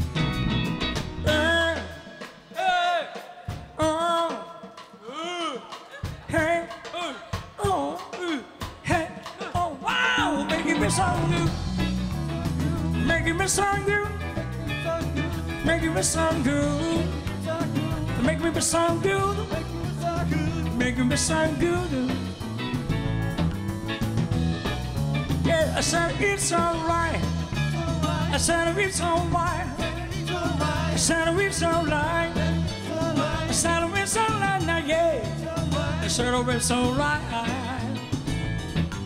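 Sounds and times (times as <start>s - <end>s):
rock band playing: 0.0s - 5.0s, 5.8s - 39.0s
vocal whoops: 9.4s - 11.7s.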